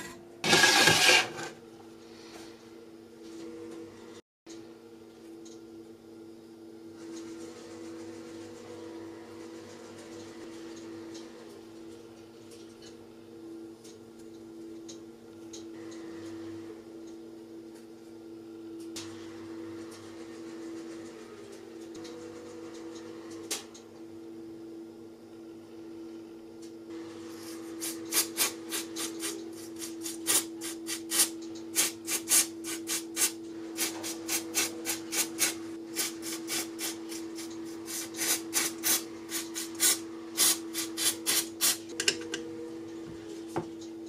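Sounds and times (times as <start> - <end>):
hand tool rasping scrapes: 0.0 - 1.6.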